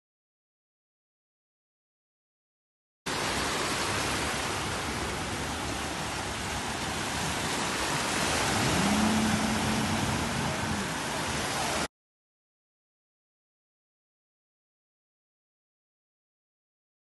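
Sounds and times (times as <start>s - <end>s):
small waves washing over sand: 3.1s - 11.9s.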